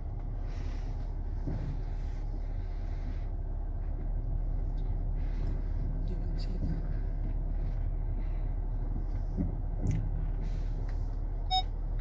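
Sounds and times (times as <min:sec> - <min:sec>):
car engine and tyre rumble: 0:00.0 - 0:12.0
car warning chime beep: 0:11.4 - 0:11.8.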